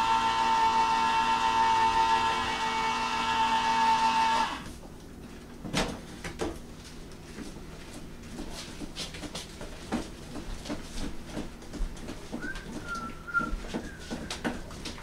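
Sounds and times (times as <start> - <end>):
electric can opener whining: 0.0 - 4.8.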